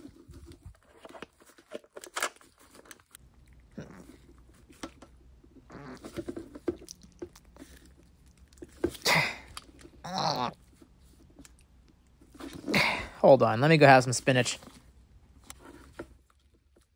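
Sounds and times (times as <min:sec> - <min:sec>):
person huffing: 0:09.0 - 0:09.6, 0:12.6 - 0:13.2.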